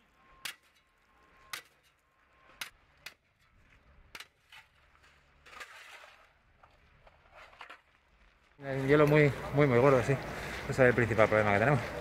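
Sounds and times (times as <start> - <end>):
broken ice scraping: 0.0 - 9.3.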